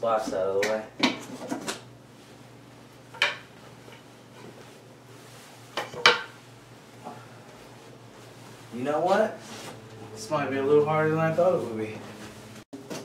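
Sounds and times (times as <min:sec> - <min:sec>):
bed frame parts knocking: 0:05.8 - 0:06.3.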